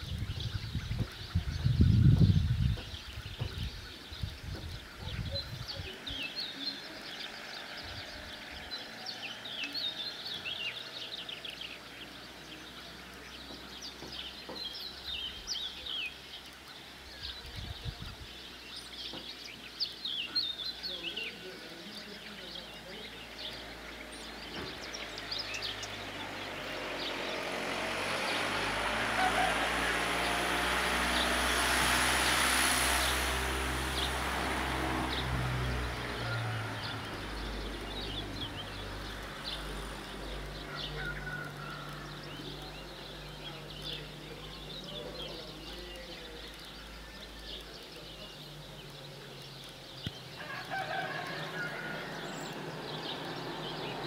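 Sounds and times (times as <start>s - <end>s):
motor vehicle passing: 0.0s - 17.4s, 22.5s - 54.0s
small birds chirping: 0.0s - 54.0s.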